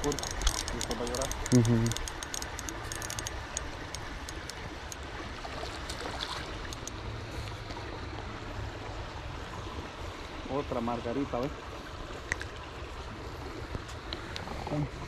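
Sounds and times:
light sharp clicks: 0.0 - 5.0.

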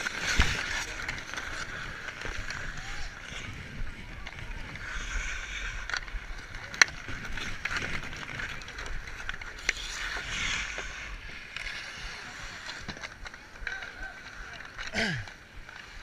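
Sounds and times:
skates scraping on ice: 0.0 - 16.0
sticks clacking on puck: 4.2 - 15.9.

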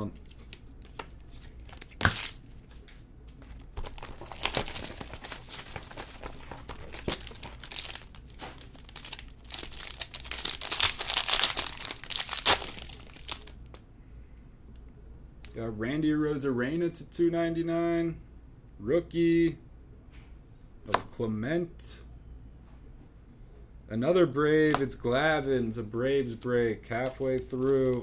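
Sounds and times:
foil packaging crinkling and tearing: 0.2 - 13.8.

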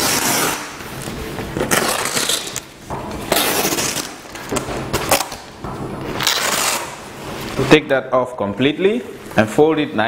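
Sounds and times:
fabric rustling and ripping: 0.0 - 0.8, 1.6 - 2.6, 3.3 - 5.5, 6.1 - 7.6.

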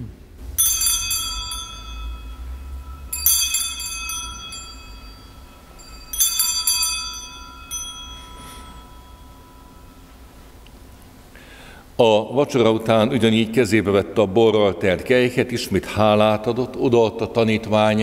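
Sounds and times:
altar bells jingling: 0.6 - 11.3.

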